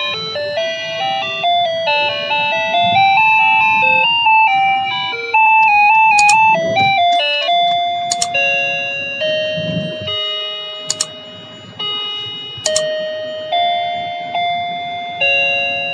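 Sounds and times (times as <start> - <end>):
sharp click: 6.2 - 6.4, 8.1 - 8.4, 10.9 - 11.2, 12.7 - 12.9.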